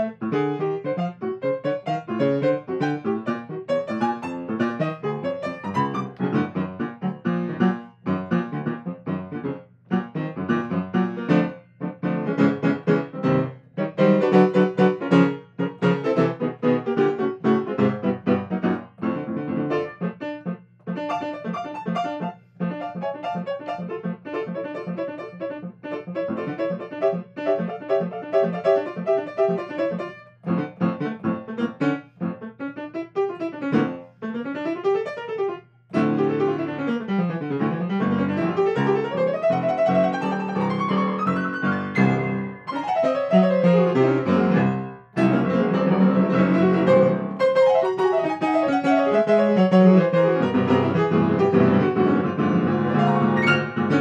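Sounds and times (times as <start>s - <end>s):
grand piano improvisation: 0.0s - 54.0s.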